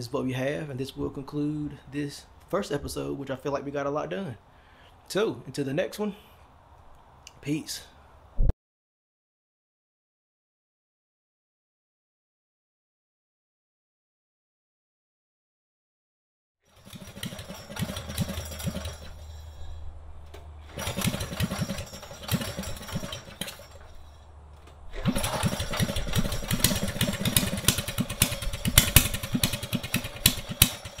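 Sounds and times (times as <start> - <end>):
small engine revving: 16.7 - 19.4, 20.6 - 24.1, 24.9 - 31.0.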